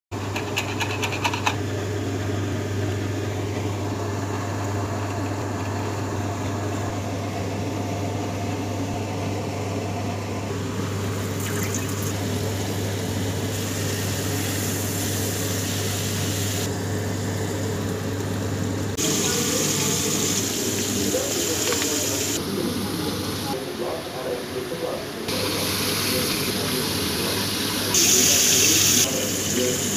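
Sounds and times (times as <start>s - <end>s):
prawns deep-frying in oil: 11.2s - 23.6s, 25.3s - 29.9s.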